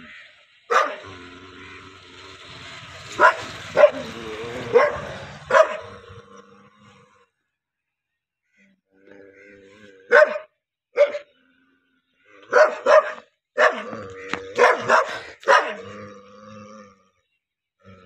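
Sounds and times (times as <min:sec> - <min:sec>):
dog barking aggressively: 0:00.6 - 0:01.2, 0:03.0 - 0:06.2, 0:10.1 - 0:11.3, 0:12.5 - 0:16.0
dog growling: 0:00.7 - 0:07.4, 0:12.2 - 0:17.2.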